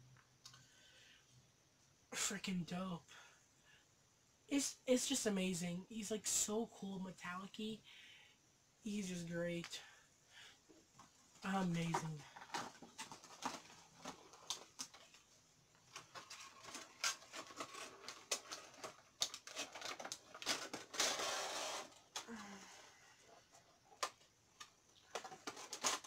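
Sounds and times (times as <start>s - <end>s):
plastic case crinkling: 11.8s - 22.2s, 23.8s - 26.0s.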